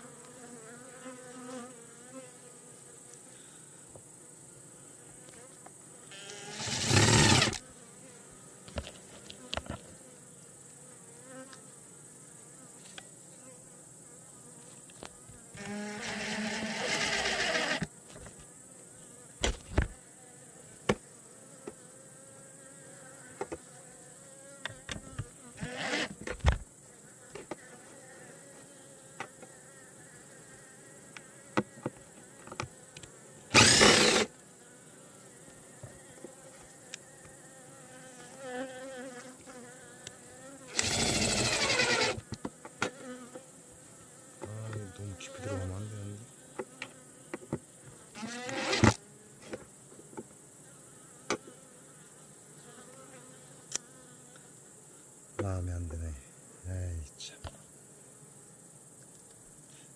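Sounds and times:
honeybees buzzing: 0.0 - 58.7
cordless screwdriver whirring: 33.6 - 34.3.

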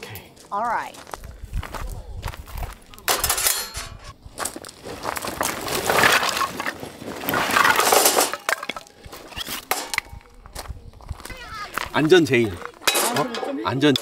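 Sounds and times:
dishes clattering and clinking: 3.1 - 4.0.

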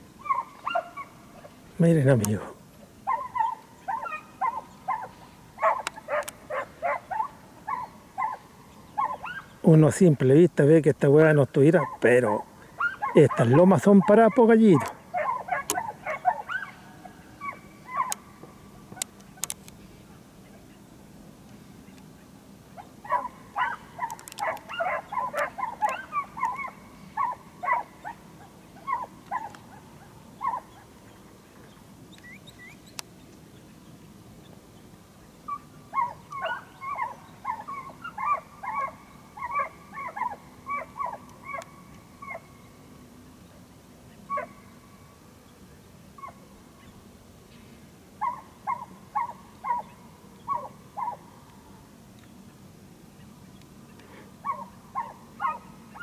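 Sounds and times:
dogs barking: 0.2 - 1.5, 3.0 - 9.6, 11.7 - 18.3, 22.8 - 31.0, 35.5 - 42.5, 44.3 - 44.6, 48.2 - 51.2, 54.4 - 56.0.

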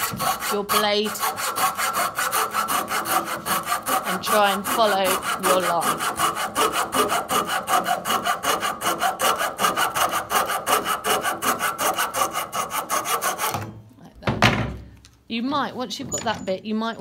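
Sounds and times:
coping saw cutting wood: 0.0 - 13.6.

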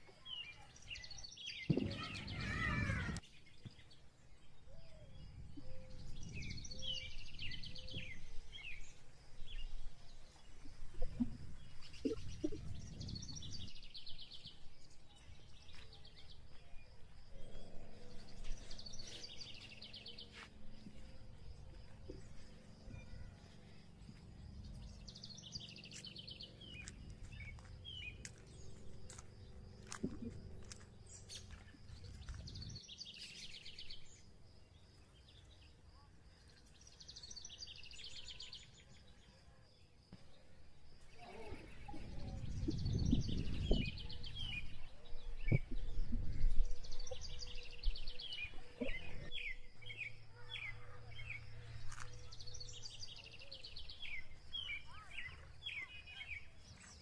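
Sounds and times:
birds chirping and trilling: 0.0 - 39.4, 40.1 - 57.0
wind rumble on microphone: 4.7 - 14.5, 41.4 - 49.4.

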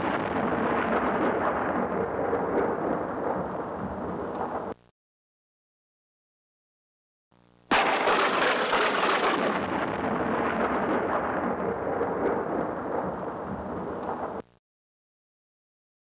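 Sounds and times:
thunderclap and rumble: 0.0 - 4.8, 7.7 - 14.5.

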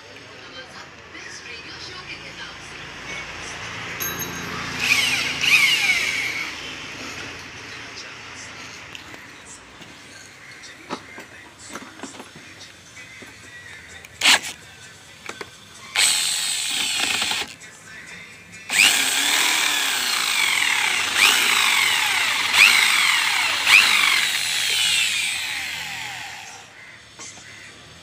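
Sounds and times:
electric drill boring metal: 4.8 - 6.6, 16.0 - 17.6, 18.7 - 26.8.

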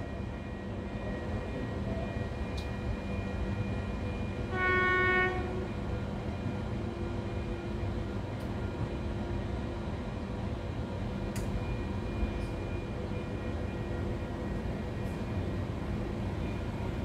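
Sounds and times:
standing train hum: 0.0 - 17.0
short train horn blast: 4.5 - 5.7.

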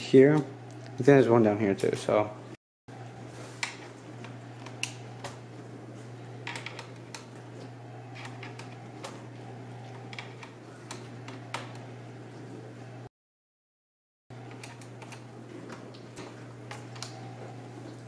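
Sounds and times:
steady low hum: 0.0 - 13.1, 14.3 - 18.0.

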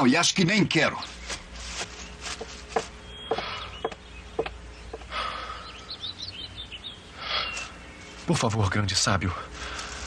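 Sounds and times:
insects buzzing: 0.4 - 10.0
faint bird chirp: 0.9 - 8.7
footsteps: 1.1 - 4.6.

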